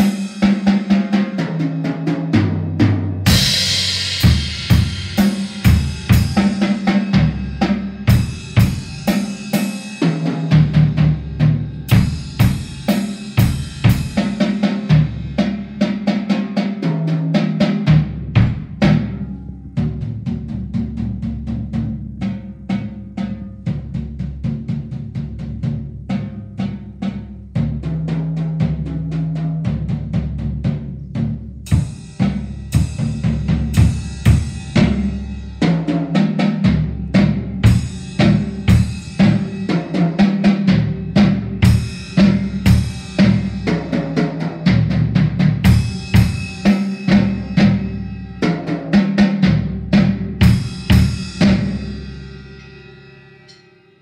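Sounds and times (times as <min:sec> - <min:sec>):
drum kit groove: 0:00.0 - 0:53.6
cymbal crashes: 0:03.3 - 0:10.0, 0:31.7 - 0:35.6, 0:45.7 - 0:48.6.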